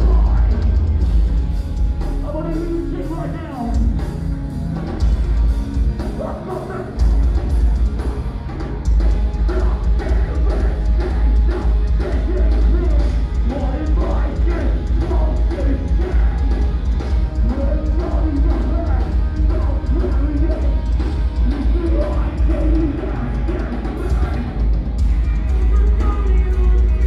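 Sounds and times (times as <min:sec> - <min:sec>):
bass: 0:00.0 - 0:27.0
distorted electric guitars: 0:00.0 - 0:27.0
drum kit: 0:00.0 - 0:27.0
person singing: 0:09.4 - 0:16.7, 0:17.4 - 0:24.6, 0:25.2 - 0:27.0.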